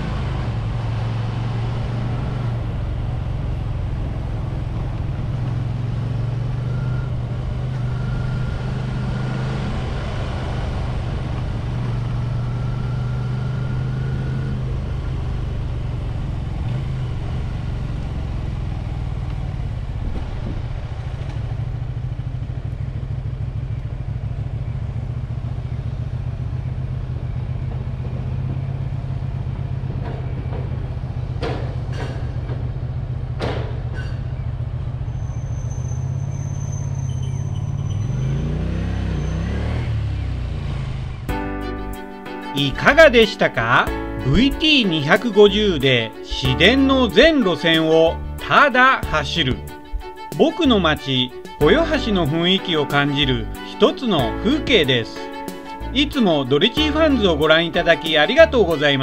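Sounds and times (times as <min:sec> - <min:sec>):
motorcycle engine running: 0:00.0 - 0:35.4.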